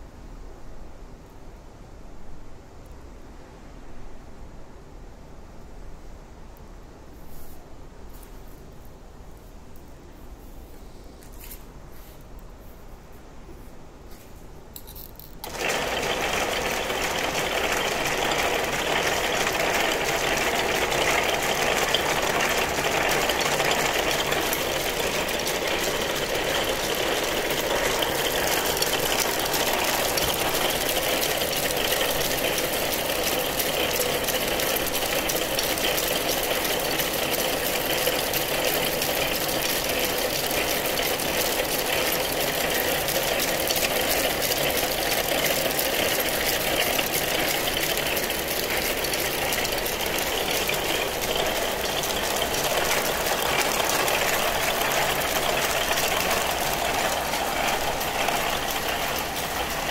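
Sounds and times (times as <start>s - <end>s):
braiding machine rattling: 14.8s - 59.9s.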